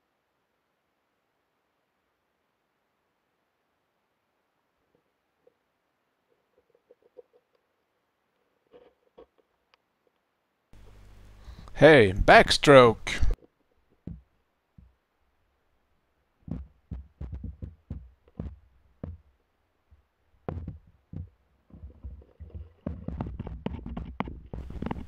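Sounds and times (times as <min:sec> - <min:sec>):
muffled underwater knocks and thumps: 0:14.0 - 0:14.2, 0:16.5 - 0:19.2, 0:20.5 - 0:25.0.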